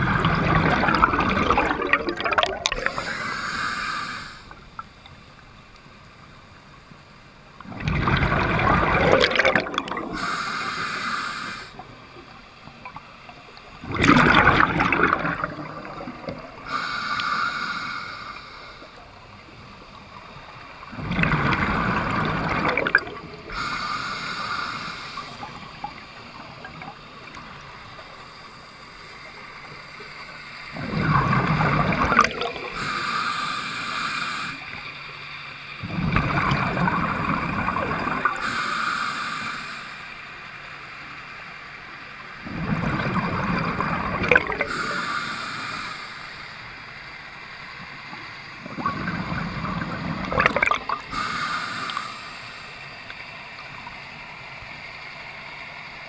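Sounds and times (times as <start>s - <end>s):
exhaled bubbles rushing: 0.0s - 3.2s, 7.7s - 10.2s, 13.8s - 16.7s, 20.9s - 23.6s, 30.8s - 32.8s, 35.8s - 38.4s, 42.4s - 44.8s, 48.6s - 51.1s
regulator hiss on inhale: 2.7s - 7.3s, 10.1s - 12.9s, 14.8s - 22.5s, 23.4s - 30.8s, 32.5s - 35.8s, 38.2s - 42.4s, 44.5s - 56.0s.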